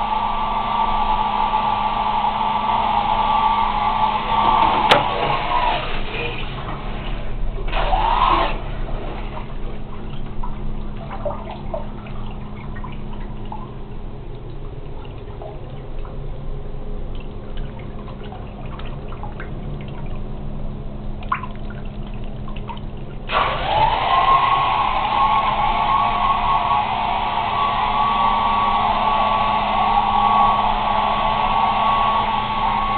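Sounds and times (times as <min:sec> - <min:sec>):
hair dryer fan whirring: 0:00.0 - 0:06.0, 0:23.3 - 0:32.9
steady low hum: 0:00.0 - 0:23.6
water sloshing and bubbling: 0:03.0 - 0:32.9
water dripping: 0:09.4 - 0:32.9.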